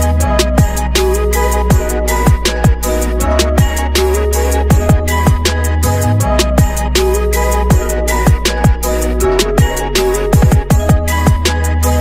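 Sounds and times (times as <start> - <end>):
electronic music with heavy beat: 0.0 - 12.0.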